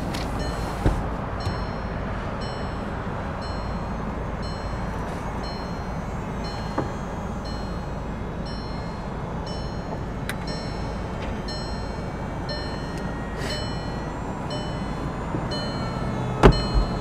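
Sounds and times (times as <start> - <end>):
car roof mechanism running: 0.0 - 17.0
car warning chime: 0.0 - 17.0
roof mechanism clicks: 8.8 - 17.0.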